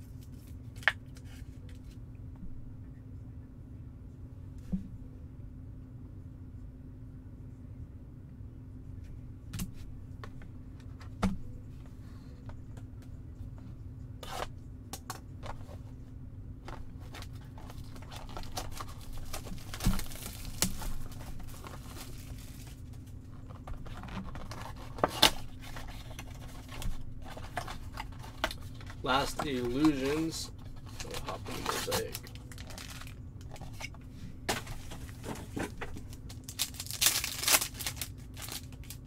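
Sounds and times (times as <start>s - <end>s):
steady low hum: 0.0s - 39.0s
cardboard box tearing and rustling: 36.5s - 39.0s.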